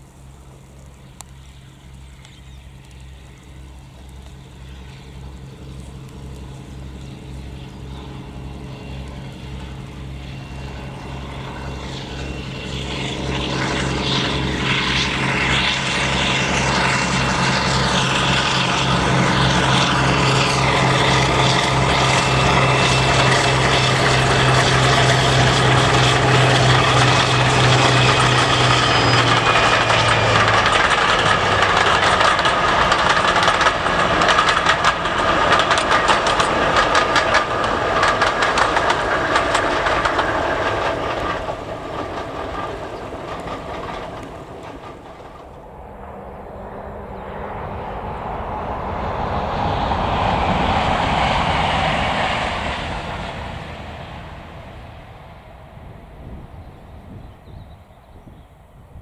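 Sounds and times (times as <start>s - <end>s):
diesel locomotive engine throbbing: 0.0s - 59.0s
coaches clattering on rails: 2.2s - 45.8s.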